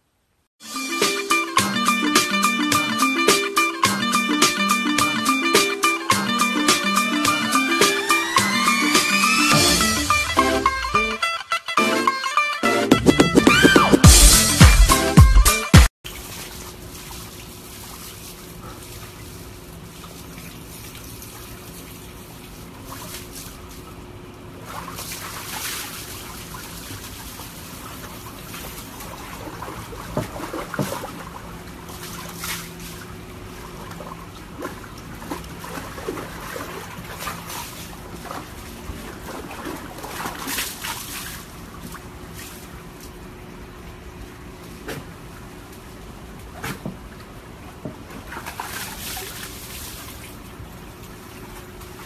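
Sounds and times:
water splashing in plastic tub: 16.0 - 43.3, 44.6 - 52.0
steady low hum: 16.1 - 52.0.

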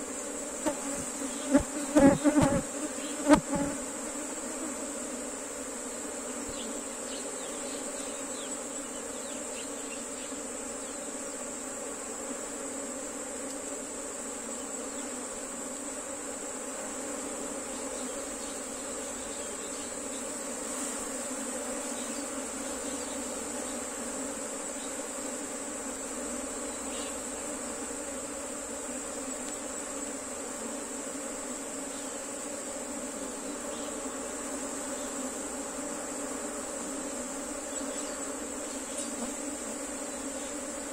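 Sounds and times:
bees buzzing: 0.0 - 40.9.

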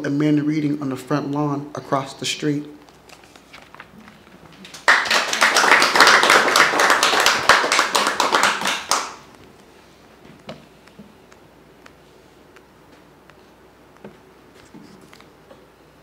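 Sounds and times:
audience applauding: 4.6 - 9.2.

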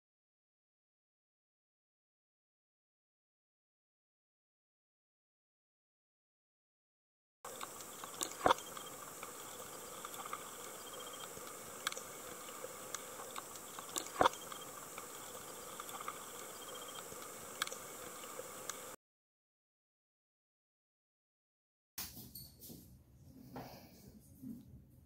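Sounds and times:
sharp underwater clicks: 7.5 - 19.0
underwater hiss: 7.5 - 19.0.

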